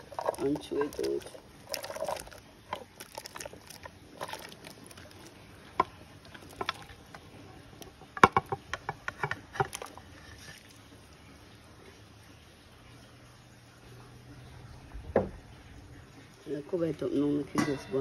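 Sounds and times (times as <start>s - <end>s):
utensils clinking against cooking pot: 0.0s - 2.3s, 17.5s - 18.0s.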